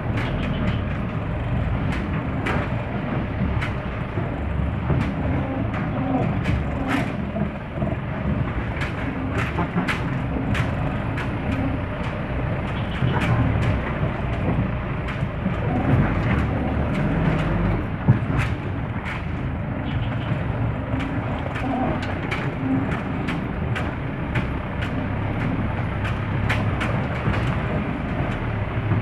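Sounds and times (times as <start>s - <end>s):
body and suspension knocks and rattles: 0.0s - 29.0s
vehicle engine running low: 0.0s - 29.0s.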